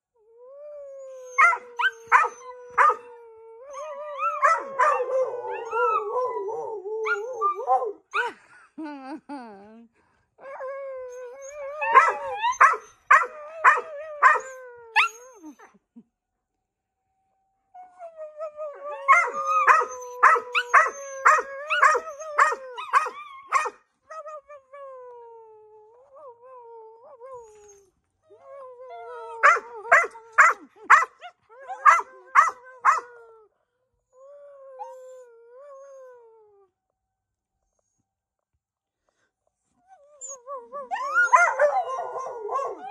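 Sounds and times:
dog howling: 1.0 - 8.0, 11.1 - 15.5, 18.4 - 23.7, 40.5 - 42.9.

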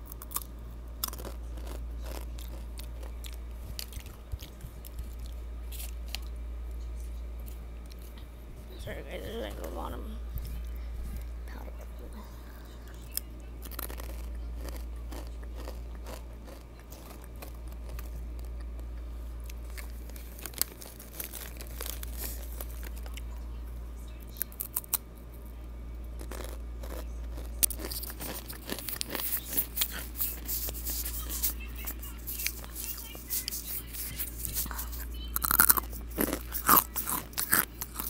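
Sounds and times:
snack bag crinkling: 0.0 - 6.3, 13.1 - 23.2, 26.2 - 38.0
chips being crunched: 13.2 - 18.8, 19.5 - 23.2, 26.2 - 38.0.

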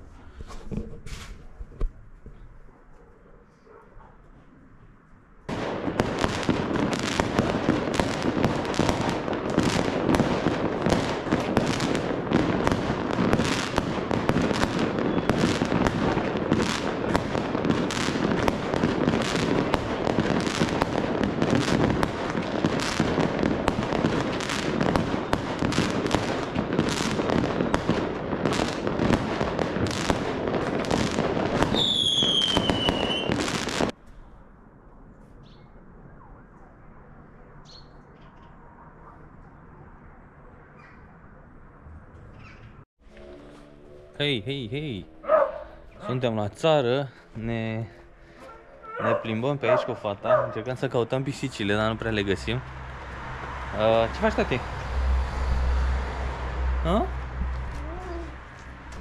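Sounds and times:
whistling firework: 5.5 - 34.0
fireworks crackling and popping: 5.5 - 34.2, 49.2 - 59.0.

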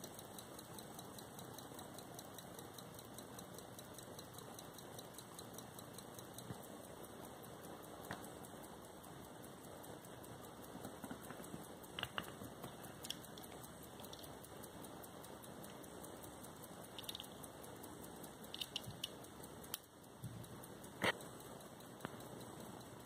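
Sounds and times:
pocket watch ticking fast: 0.0 - 23.0
clicks from watch being handled: 9.4 - 14.7, 15.6 - 19.9.

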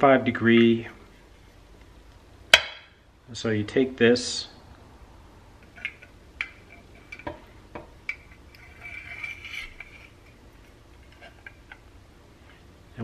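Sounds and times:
metal scraping on metal: 8.0 - 11.8.

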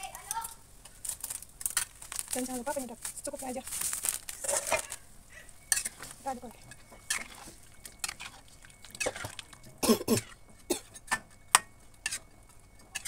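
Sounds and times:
spatula scraping a wok: 4.2 - 5.0, 5.6 - 9.5, 10.1 - 13.0.

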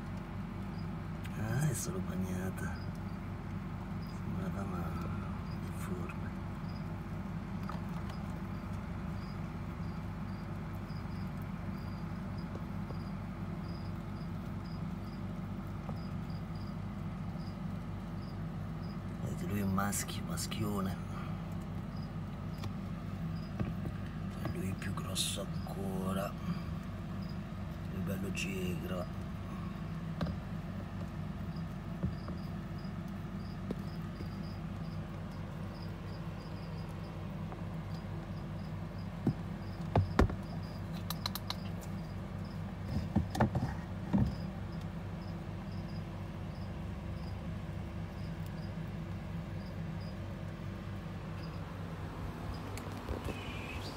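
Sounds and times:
steady low hum: 0.0 - 53.9
high-pitched insect chirps: 31.4 - 37.2, 37.9 - 42.6
low hum: 43.8 - 53.9.

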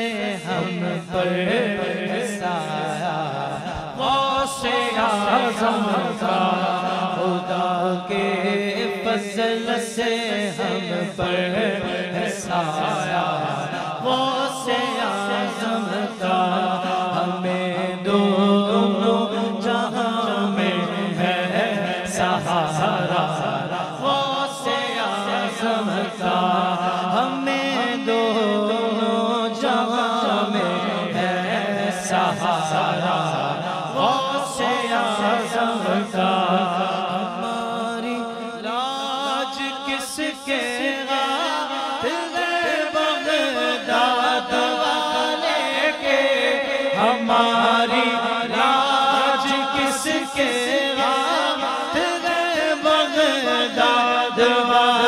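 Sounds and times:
low vocal drone: 0.0 - 38.2
man singing ornamented lines: 0.0 - 55.0.

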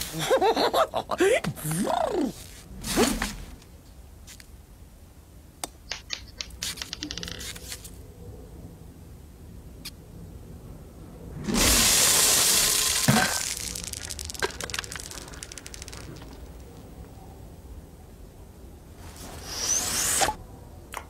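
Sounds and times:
berries pouring onto wooden floor: 11.5 - 16.6.

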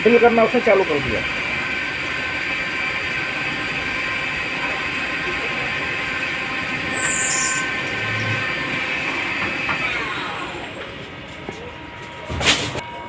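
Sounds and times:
lathe drilling: 0.0 - 11.6
loud noise burst: 3.4 - 11.2.

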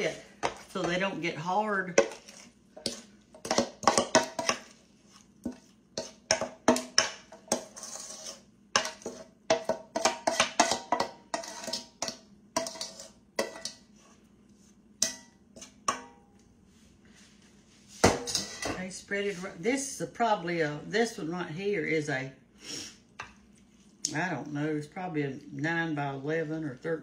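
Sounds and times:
spoon scraping and knocking bowl: 1.9 - 13.8, 18.0 - 18.8.

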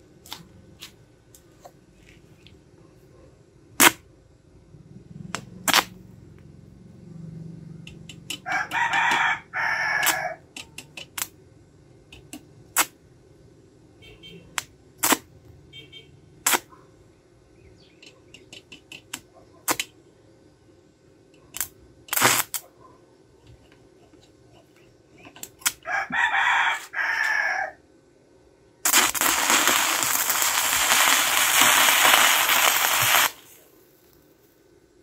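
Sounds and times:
welding arc crackling: 5.3 - 6.0, 7.8 - 11.4, 12.2 - 13.0, 14.5 - 15.3, 16.4 - 16.7, 18.4 - 19.9, 21.6 - 22.7, 28.8 - 34.4
rooster crowing: 8.3 - 10.5, 25.8 - 27.9.

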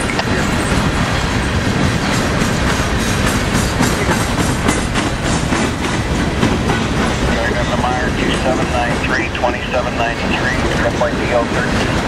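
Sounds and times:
wheels clicking over rail joints: 0.0 - 7.6
freight train rumbling past: 0.0 - 12.0.

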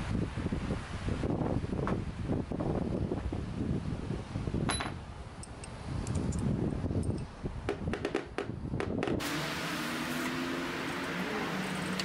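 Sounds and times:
wind rumble on microphone: 0.0 - 9.2.

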